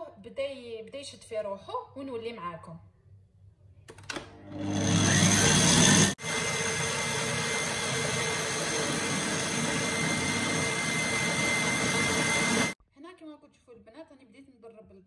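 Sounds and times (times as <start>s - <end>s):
stand mixer motor whining: 4.3s - 12.8s.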